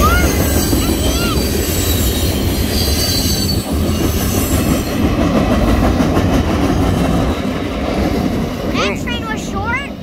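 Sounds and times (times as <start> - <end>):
high wheel squeal: 0.0 - 5.2
train wheels rumbling on rail: 0.0 - 10.0.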